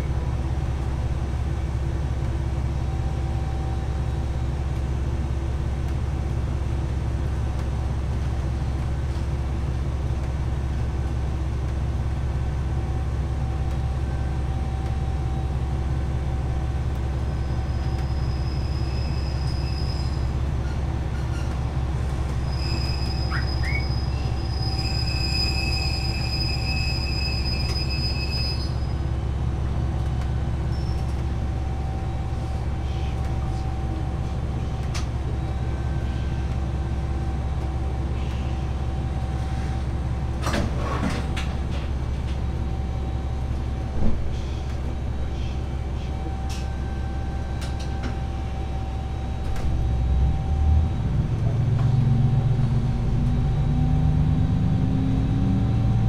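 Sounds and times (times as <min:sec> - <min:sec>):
railcar engine rumble: 0:00.0 - 0:56.0
wheel squeal: 0:17.4 - 0:21.6, 0:22.4 - 0:29.0, 0:30.7 - 0:31.1.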